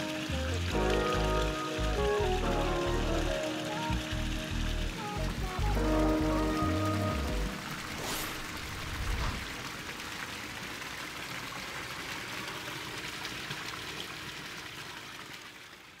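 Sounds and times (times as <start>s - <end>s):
waterfall splashing into pool: 0.0s - 16.0s
brief whoosh: 7.9s - 9.6s.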